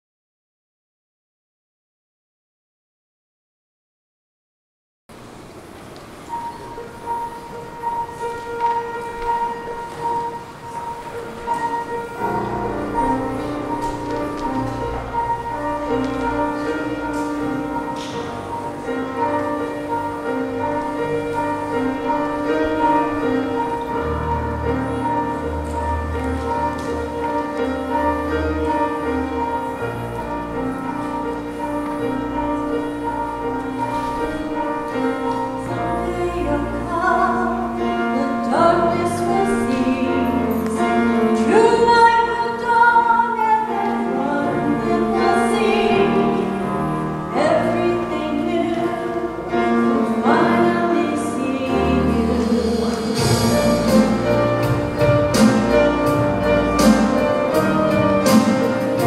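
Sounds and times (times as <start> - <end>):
piano: 5.1 - 59.0
woman singing: 35.8 - 54.3
drums: 52.5 - 59.0.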